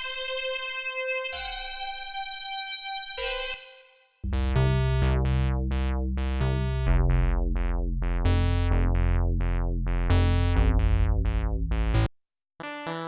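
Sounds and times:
synthesizer bass line: 4.2 - 12.1
bright plucked synth notes: 4.2 - 13.0.

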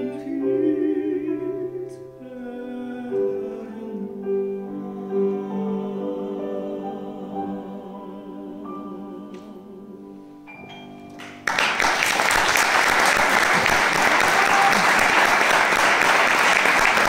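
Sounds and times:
piano notes ringing: 0.0 - 12.0
audience applause: 11.2 - 17.0.

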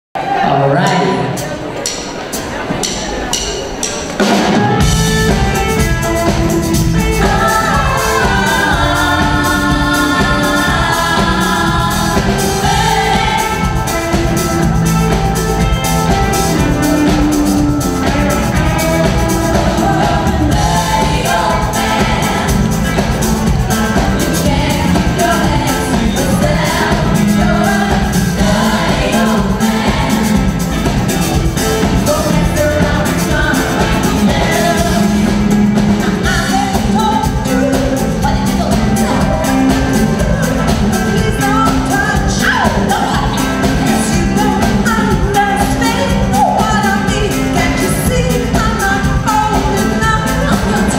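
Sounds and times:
live band playing: 0.2 - 50.9
women singing in harmony: 6.7 - 14.1, 18.6 - 30.7, 31.8 - 35.4, 36.2 - 50.9.

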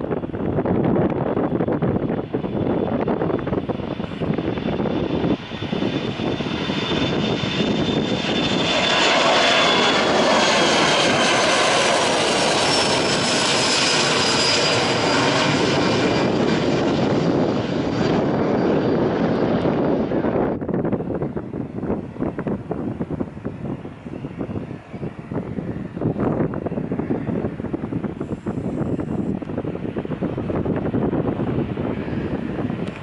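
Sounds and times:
jet airliner roar: 0.0 - 33.0
high fan whine: 18.2 - 33.0.

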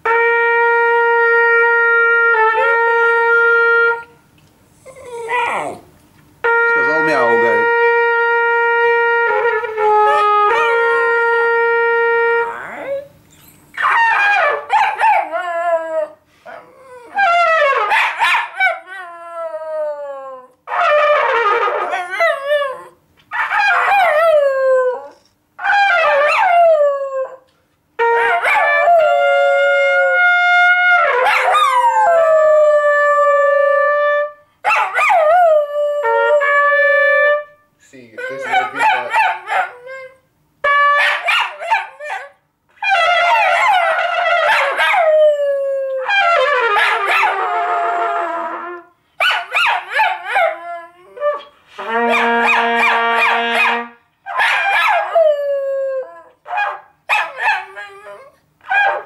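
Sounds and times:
dog howling: 4.8 - 5.9, 12.2 - 27.4, 28.2 - 30.3, 38.2 - 40.2, 41.2 - 53.6, 54.3 - 59.0.

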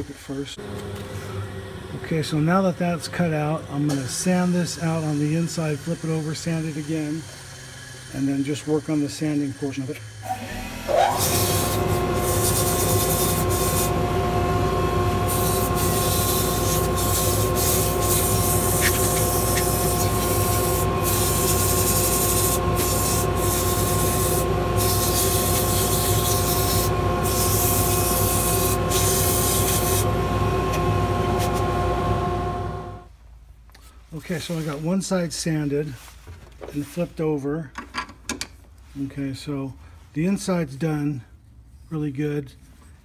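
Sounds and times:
wood lathe whining: 0.6 - 33.1
sandpaper sanding hiss: 11.2 - 14.0, 15.2 - 30.1.

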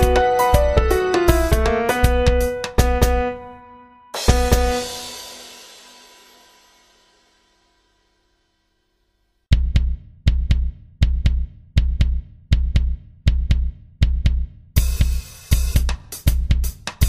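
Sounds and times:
drum beat with bass drum: 0.0 - 3.4, 4.2 - 6.8, 9.5 - 17.0
cymbals and instruments: 0.0 - 7.7.

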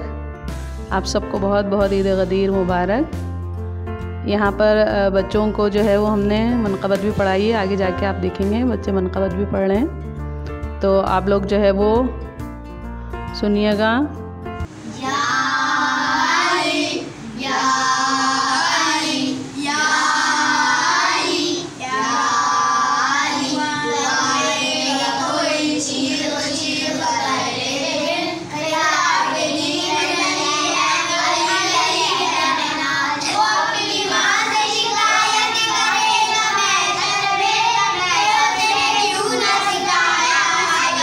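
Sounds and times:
children singing together: 14.8 - 41.0.

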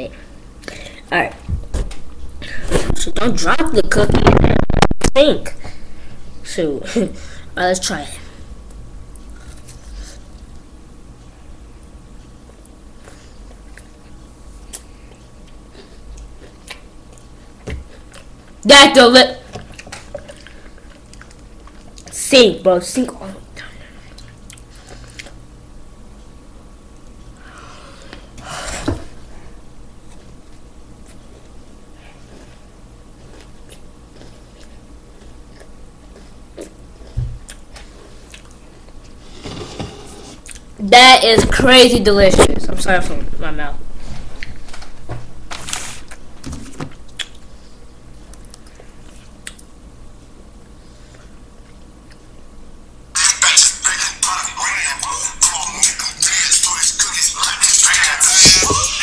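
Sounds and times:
person chewing cookie: 12.5 - 18.6, 19.6 - 22.1, 24.0 - 25.4, 30.1 - 39.2, 47.0 - 49.8, 50.6 - 52.5
soft mouth clicks: 49.4 - 49.7.

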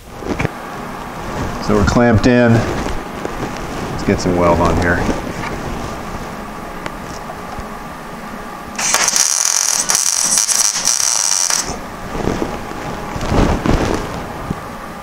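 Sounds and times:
welder arc hissing: 8.8 - 11.8.

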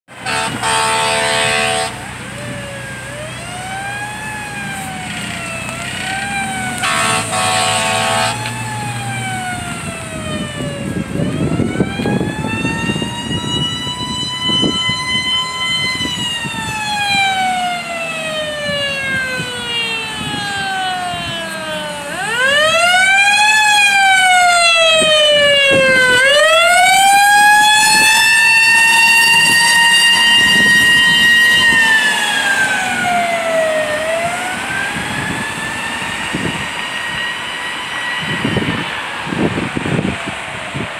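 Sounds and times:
fire engine siren wailing: 0.1 - 40.9
flat horn blast: 0.2 - 2.0, 6.8 - 8.6.

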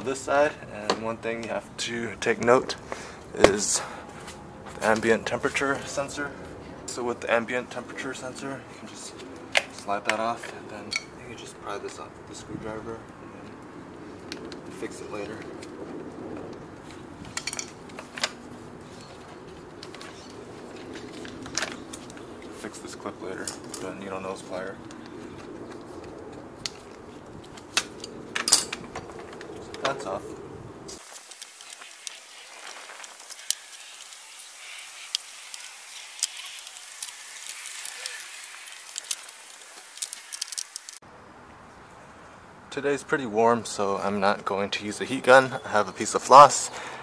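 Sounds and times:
steady hiss: 30.8 - 41.0.

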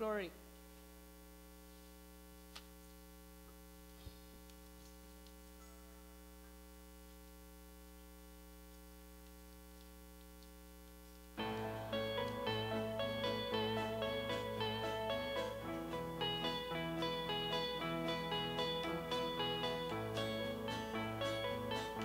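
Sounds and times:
steady electrical hum: 0.0 - 22.0
faint clicks: 7.9 - 11.3.

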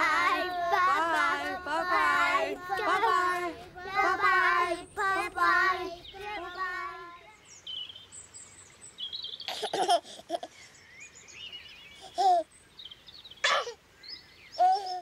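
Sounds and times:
children singing: 0.0 - 7.3
birds chirping: 0.0 - 9.9
baby giggling: 9.5 - 10.5.

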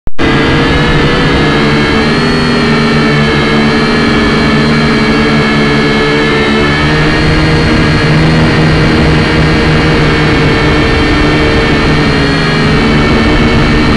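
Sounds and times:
drone propellers whining: 0.1 - 13.9.

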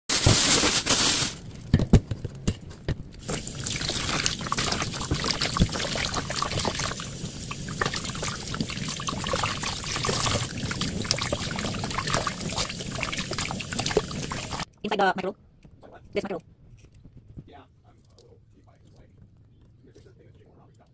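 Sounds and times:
plastic bag rustling: 0.1 - 1.6, 3.2 - 14.7
hands rinsing fish: 3.2 - 14.7
tap water running into a bowl: 3.2 - 14.7.

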